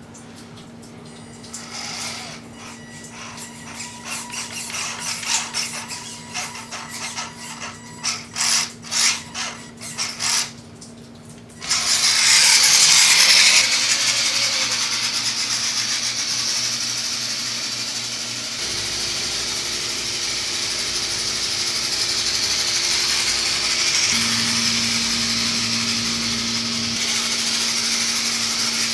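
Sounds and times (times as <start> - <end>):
toy car electric motor whirring: 1.2 - 10.6, 11.6 - 28.9
high motor whine: 11.6 - 28.9.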